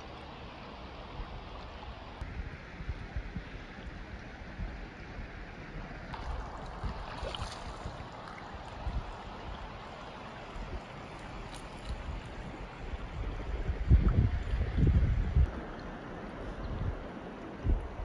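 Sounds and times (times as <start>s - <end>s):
moving water hiss: 0.0s - 18.0s
wind buffeting microphone: 1.1s - 18.0s.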